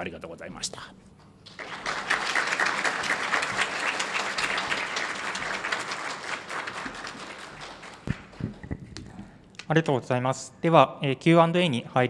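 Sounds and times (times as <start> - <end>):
audience applause: 1.5 - 8.8.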